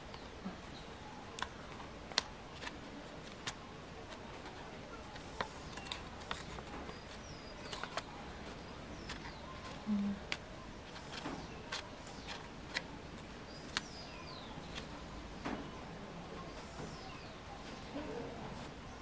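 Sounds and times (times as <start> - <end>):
paper clicks and crinkles: 1.3 - 15.0.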